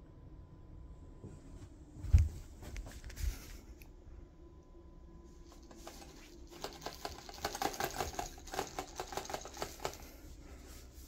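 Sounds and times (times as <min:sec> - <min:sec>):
cat claws clicking on tile: 0:06.6 - 0:10.1.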